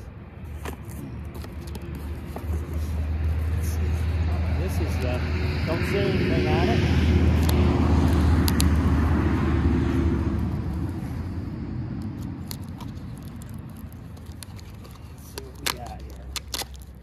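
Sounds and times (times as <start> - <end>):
vehicle engine and tyre rumble: 0.0 - 17.0
paper clicks: 0.6 - 2.8, 7.3 - 8.8, 11.9 - 17.0.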